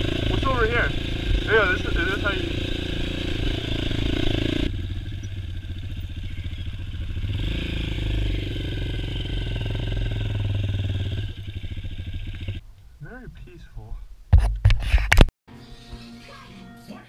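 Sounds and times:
dirt bike engine running: 0.0s - 12.6s.

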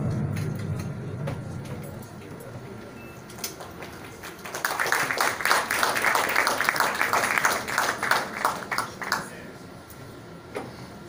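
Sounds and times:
audience applauding: 3.4s - 9.4s.

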